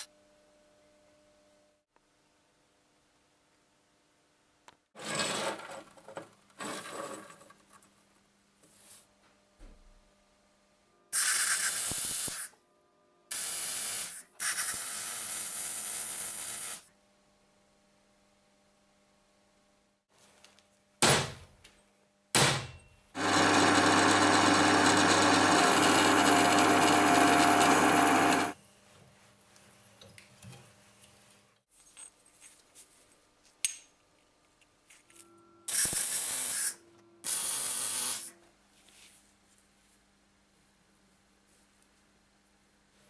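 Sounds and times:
loud metalworking noise: 23.2 - 28.6.

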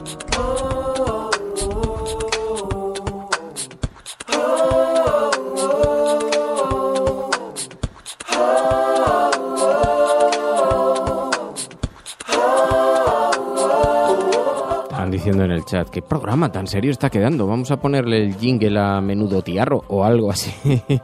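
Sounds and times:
vocal group singing chords: 0.0 - 17.9.

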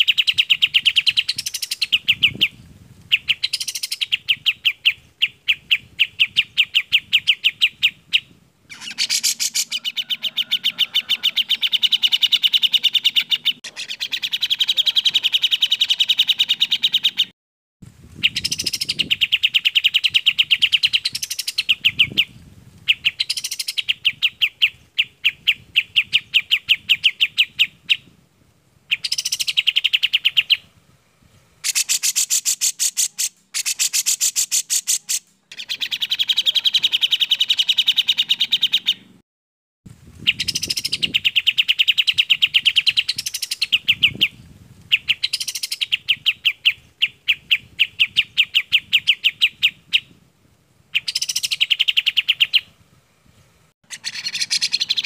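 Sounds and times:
songbirds singing sharp high notes: 0.0 - 17.3, 18.2 - 28.2, 28.9 - 30.7, 31.6 - 39.2, 40.2 - 50.2, 50.9 - 52.8, 53.5 - 55.0.

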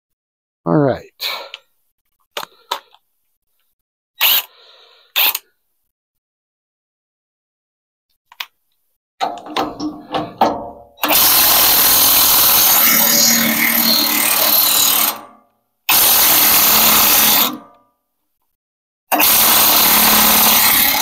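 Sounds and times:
impact wrench hammering: 9.2 - 15.3.

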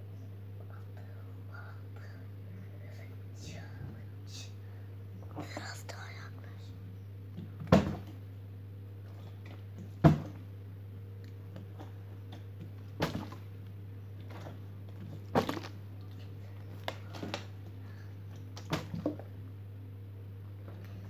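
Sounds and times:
steady low hum: 0.0 - 21.0
objects knocking and thumping: 7.4 - 8.2, 9.1 - 10.4, 12.6 - 13.4, 14.2 - 15.8, 18.6 - 19.2.

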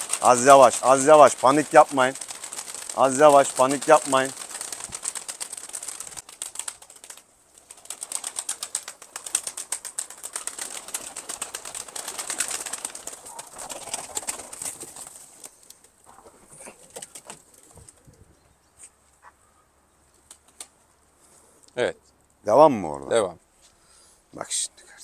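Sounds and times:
pigeon wings flapping: 0.0 - 18.2, 20.2 - 20.8.

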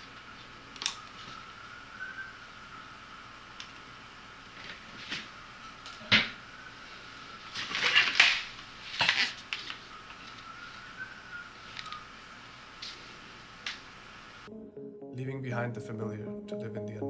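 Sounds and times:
objects scraping and clattering: 7.5 - 9.4.

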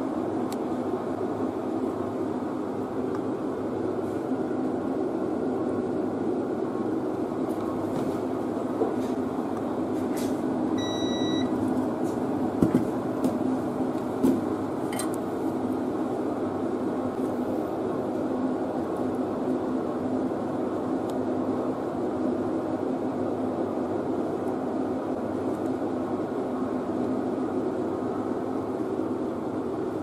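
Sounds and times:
multimeter beep: 10.8 - 11.5.

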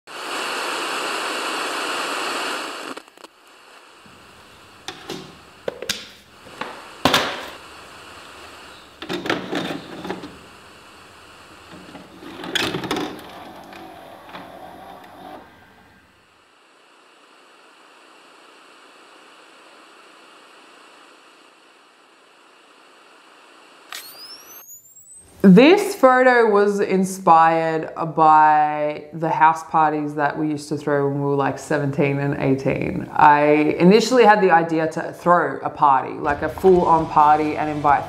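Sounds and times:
tv static hiss: 0.1 - 38.0
cassette loading into vcr clicks: 9.0 - 10.4, 11.7 - 15.4.

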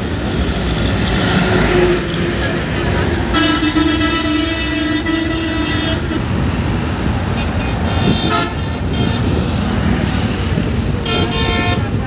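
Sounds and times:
train horn: 3.3 - 6.3, 8.0 - 9.2.

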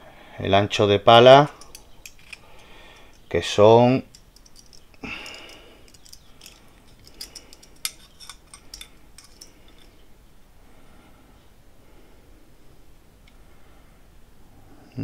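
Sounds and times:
light metal clicks and taps: 4.1 - 10.0
caliper scraping metal blade: 5.9 - 9.9.

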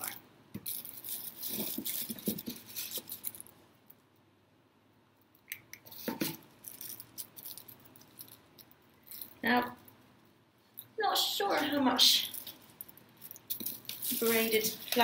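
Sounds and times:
plastic strands crinkling: 0.6 - 3.6, 5.9 - 9.9, 11.6 - 15.0.

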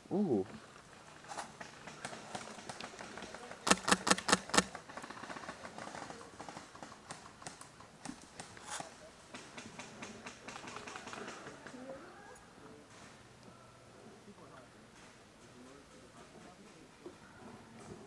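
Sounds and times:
airsoft gun shots: 3.7 - 4.7
distant shot clicks: 3.7 - 4.7.

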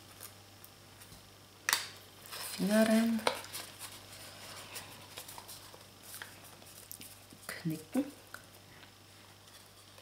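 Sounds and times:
paper rustling: 2.3 - 7.3.

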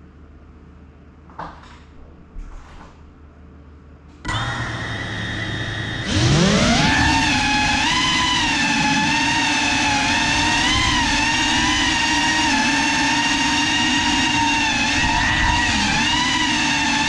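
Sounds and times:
drone propellers whining: 4.3 - 17.0.

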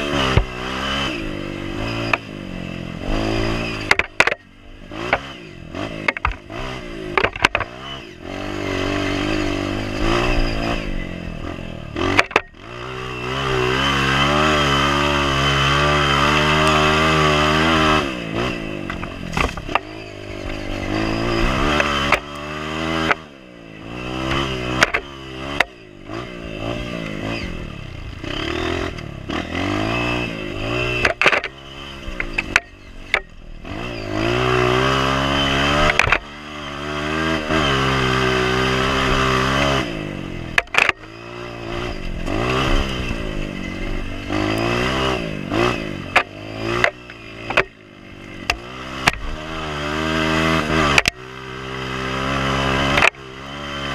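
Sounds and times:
motorcycle engine revving: 0.0 - 53.9
knocks from rough ground: 0.3 - 0.6, 18.9 - 19.9.

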